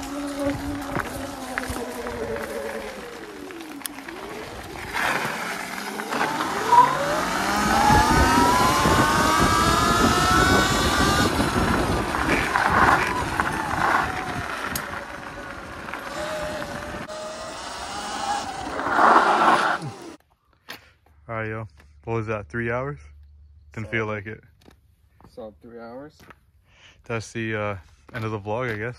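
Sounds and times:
electric motor whining: 0.0 - 20.2
tyre and wind noise: 0.0 - 20.2.

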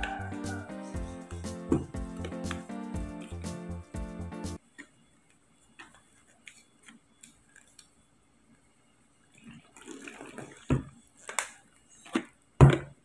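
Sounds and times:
water pouring and splashing: 9.7 - 10.8.

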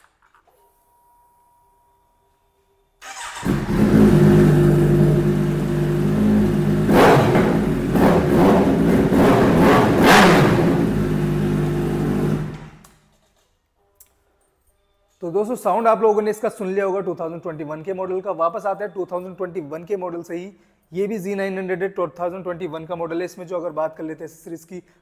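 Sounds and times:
motorcycle engine idling and revving: 3.0 - 12.8.

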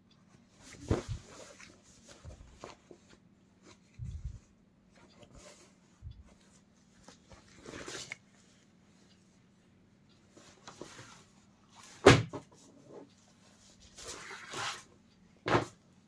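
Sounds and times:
denim fabric rustling: 0.6 - 3.0.

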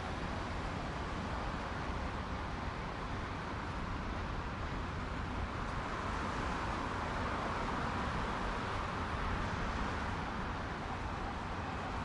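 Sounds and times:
road traffic: 0.0 - 12.0.

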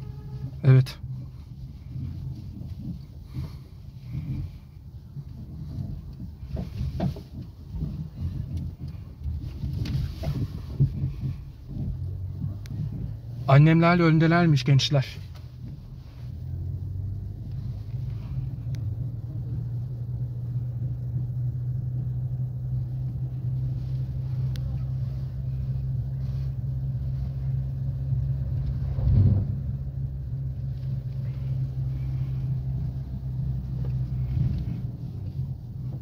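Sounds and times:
road rumble inside car: 0.0 - 36.0
car bump: 2.0 - 13.5.

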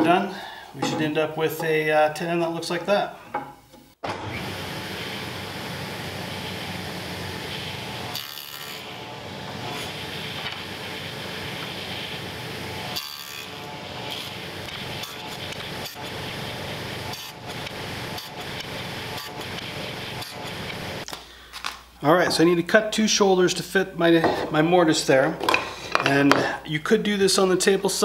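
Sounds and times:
table saw cutting wood: 4.0 - 21.1.

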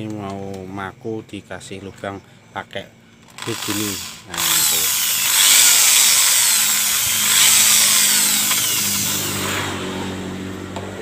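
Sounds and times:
electric drill boring: 3.3 - 9.7.

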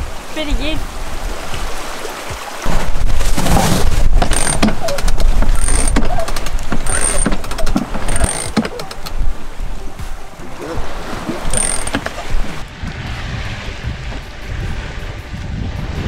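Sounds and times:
winch ratcheting clicks: 4.2 - 9.2, 11.5 - 12.2
short high squeak: 4.3 - 9.1, 11.5 - 12.1.

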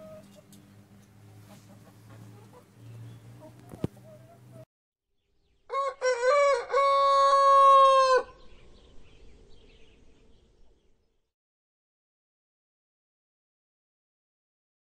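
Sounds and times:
hen clucking: 0.0 - 0.7, 1.3 - 4.7
rooster crowing: 5.7 - 8.4.

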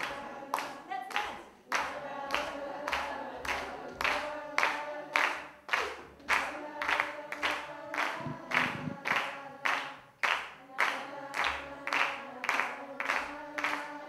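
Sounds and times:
rhythmic clapping: 0.0 - 14.0
voices singing sustained notes: 6.4 - 9.7.

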